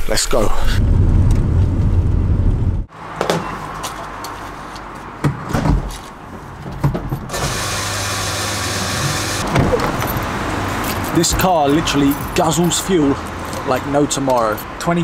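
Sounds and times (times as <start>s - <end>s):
fuel pump hissing and humming: 7.3s - 9.4s.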